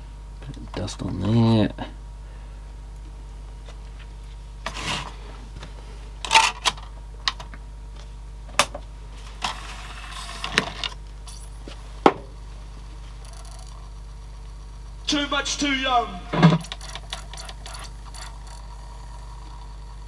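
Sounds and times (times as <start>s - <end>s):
disc tray closing clack: 16.3s - 17.6s.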